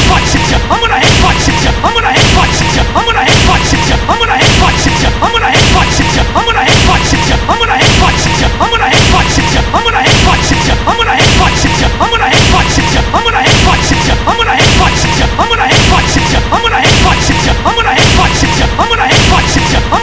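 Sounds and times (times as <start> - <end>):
music: 0.0 - 20.0
cartoon crashing hit with swish: 2.2 - 5.0.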